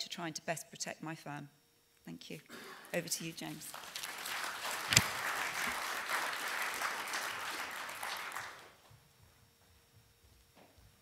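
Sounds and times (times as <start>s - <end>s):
audience applause: 3.5s - 8.8s.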